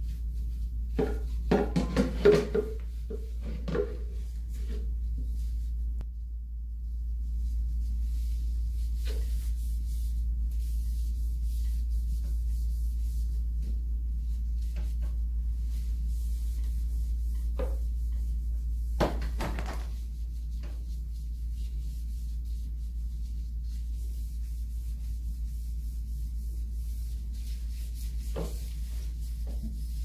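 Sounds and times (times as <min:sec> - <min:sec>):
steady low hum: 0:00.0 - 0:30.0
plastic basket knocking: 0:19.0 - 0:19.9.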